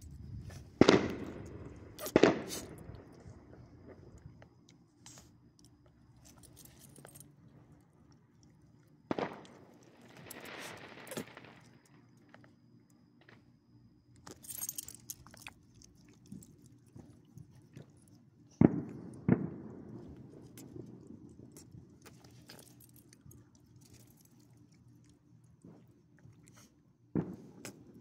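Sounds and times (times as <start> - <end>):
dog collar tags jingling: 6.2 - 7.4, 14.2 - 15.6, 22.2 - 24.3.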